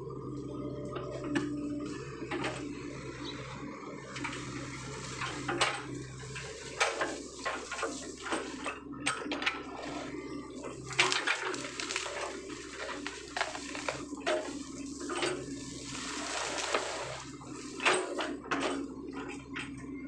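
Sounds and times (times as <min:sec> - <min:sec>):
excavator diesel engine running: 0:00.0 - 0:20.0
branches knocking and cracking: 0:04.2 - 0:18.8
water splashing and pouring: 0:10.7 - 0:18.4.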